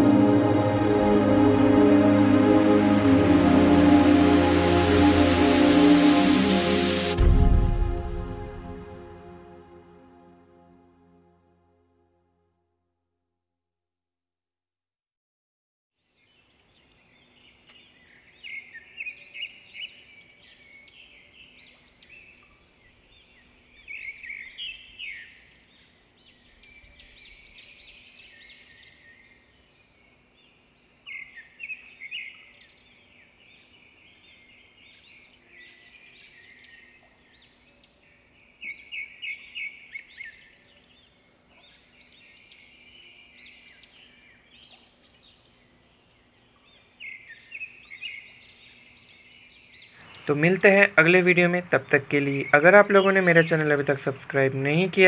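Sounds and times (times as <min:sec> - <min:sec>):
faint steady hum: 0:00.0 - 0:11.6
birds chirping and singing: 0:31.1 - 0:55.0.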